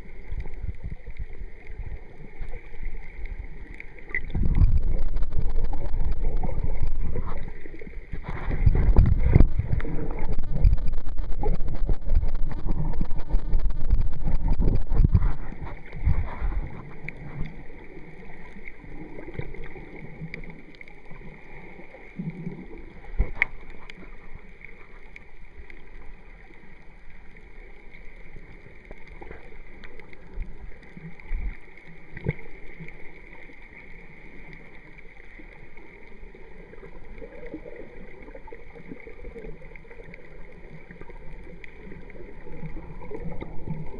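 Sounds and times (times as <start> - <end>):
faint clicks: 0.0 - 43.9
underwater sloshing and rumbling: 0.0 - 43.9
underwater hiss: 5.5 - 10.7.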